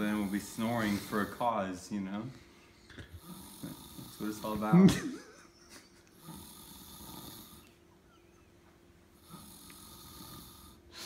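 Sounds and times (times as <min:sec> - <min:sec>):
person snoring softly: 0:00.0 - 0:01.8, 0:03.0 - 0:04.7, 0:06.2 - 0:07.8, 0:09.1 - 0:11.0.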